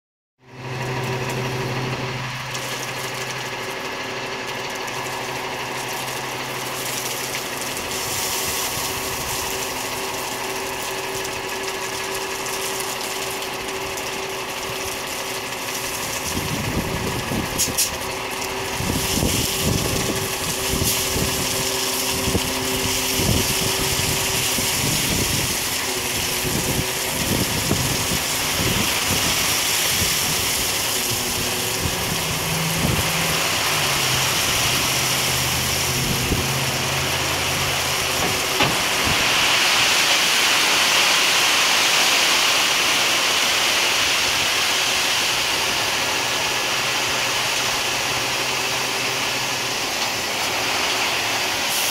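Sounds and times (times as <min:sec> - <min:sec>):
truck engine running: 0:00.4 - 0:51.9
gravel pouring: 0:00.5 - 0:51.9.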